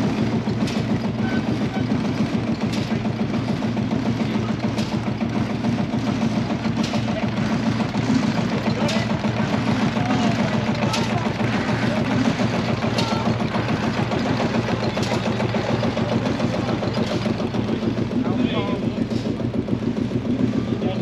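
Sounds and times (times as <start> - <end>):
heavy engine idling: 0.0 - 21.0.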